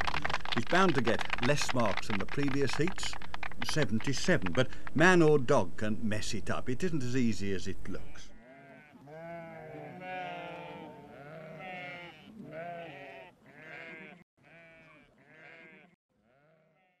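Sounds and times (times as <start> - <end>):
sheep bleating: 8.1 - 17.0.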